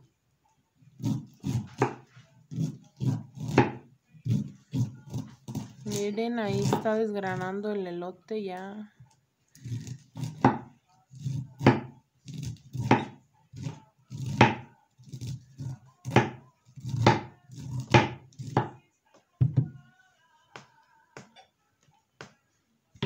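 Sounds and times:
knife scraping corn kernels: 1.0s - 3.6s, 4.2s - 7.0s, 9.6s - 10.4s, 11.0s - 18.6s
knife knocking on cutting board: 19.4s - 19.7s.

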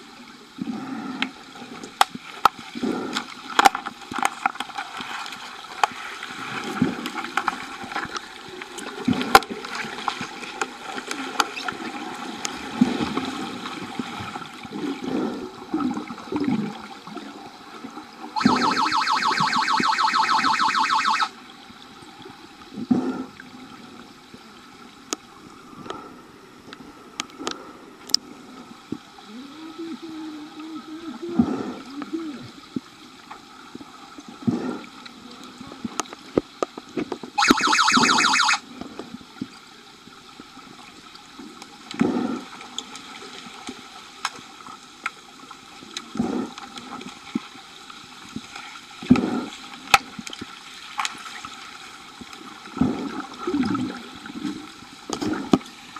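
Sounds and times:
underwater gurgling and bubbling: 6.0s - 20.1s, 27.6s - 36.2s, 52.1s - 55.9s
underwater buzzer: 18.4s - 21.3s, 37.4s - 38.6s.

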